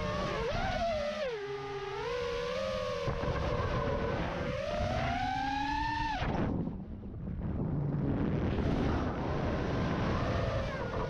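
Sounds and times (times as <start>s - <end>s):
quadcopter motors whining: 0.0s - 6.4s.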